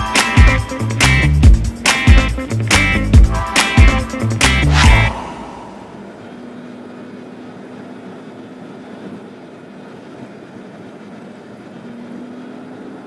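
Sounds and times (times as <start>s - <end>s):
vehicle road and engine noise: 0.6s - 13.0s
low hum: 2.4s - 8.1s.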